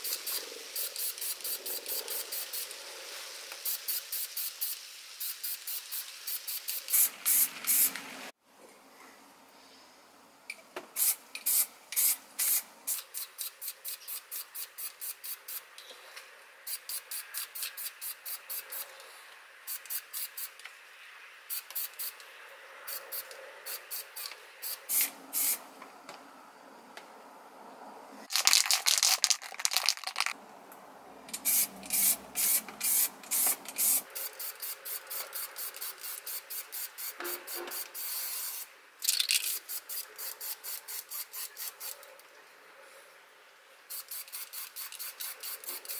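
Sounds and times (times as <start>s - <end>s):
spray paint can hissing: 0.0s - 8.1s, 11.0s - 15.7s, 16.7s - 18.9s, 19.7s - 20.6s, 21.5s - 22.2s, 22.9s - 25.6s, 28.3s - 30.4s, 31.3s - 42.0s, 43.9s - 45.9s.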